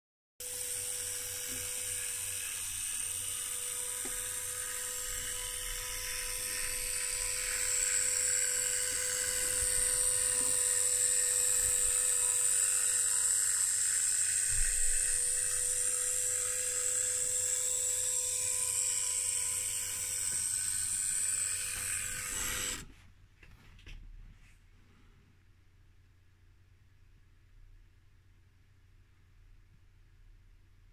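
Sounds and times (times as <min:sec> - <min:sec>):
model train motor whining: 0:00.4 - 0:22.9.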